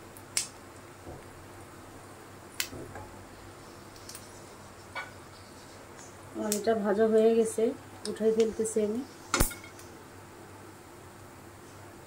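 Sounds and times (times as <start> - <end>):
oil sizzling in pan: 8.6 - 10.0.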